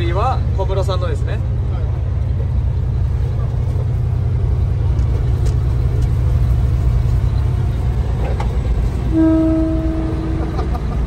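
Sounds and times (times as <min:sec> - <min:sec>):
road noise: 0:00.0 - 0:11.0
truck diesel engine rumble: 0:00.0 - 0:11.0
steady tone: 0:09.1 - 0:11.0.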